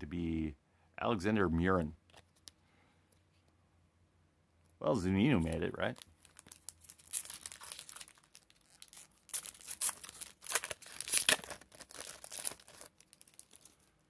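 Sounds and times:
foil wrapper crinkling and ripping: 5.4s - 14.0s.

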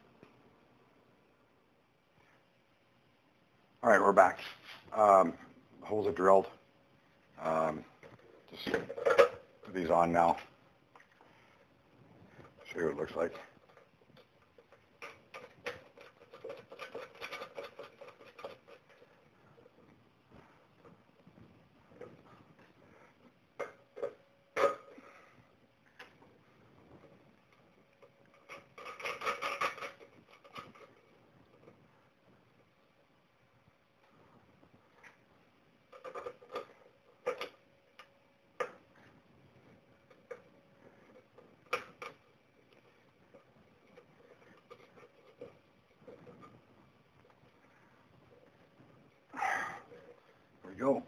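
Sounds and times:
plastic clicks and rubbing: 12.4s - 19.2s.

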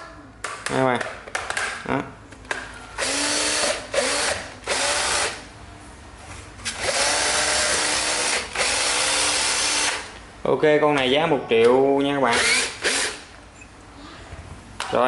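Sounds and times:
cordless drill motor whine: 3.0s - 5.3s, 12.3s - 13.2s.

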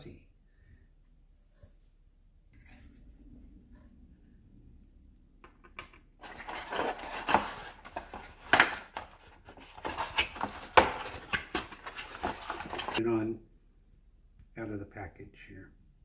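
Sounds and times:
cardboard scraping and rustling: 6.2s - 13.0s.

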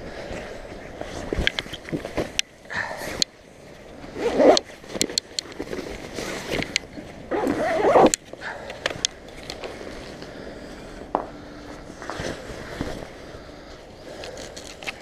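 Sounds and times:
cloth bag rustling: 4.0s - 10.3s
zip: 4.1s - 5.0s, 5.6s - 8.2s.

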